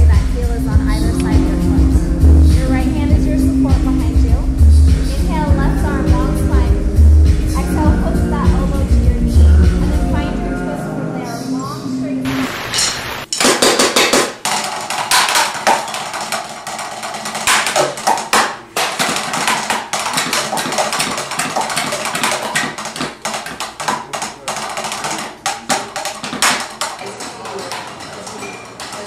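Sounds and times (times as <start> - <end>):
drumsticks tapping practice pads: 13.3 - 29.0.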